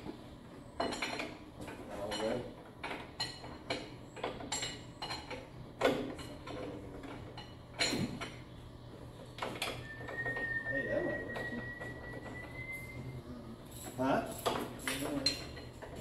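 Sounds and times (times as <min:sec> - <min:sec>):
steady low hum: 0:00.0 - 0:16.0
metal clanks and knocks: 0:00.8 - 0:08.4, 0:13.7 - 0:16.0.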